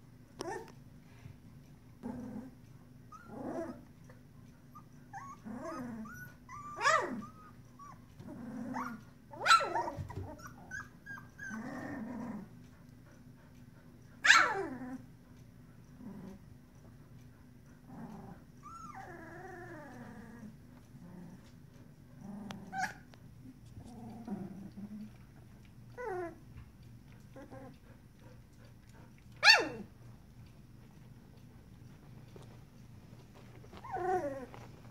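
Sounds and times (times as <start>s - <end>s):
puppies whimpering and squealing: 4.7s - 12.1s, 18.5s - 20.5s, 22.6s - 23.1s, 33.7s - 34.7s
puppy grunts: 22.2s - 26.4s.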